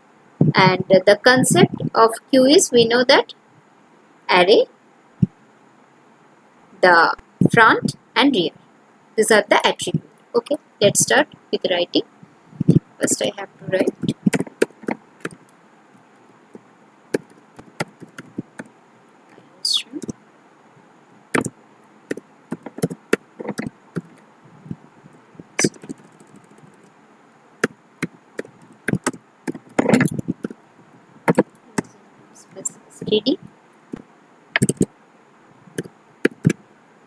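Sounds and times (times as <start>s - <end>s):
computer keyboard typing: 13.8s - 15.5s, 17.2s - 18.7s, 22.1s - 24.2s, 25.6s - 26.9s, 27.6s - 30.6s, 31.3s - 31.9s, 34.6s - 34.9s, 36.3s - 36.6s.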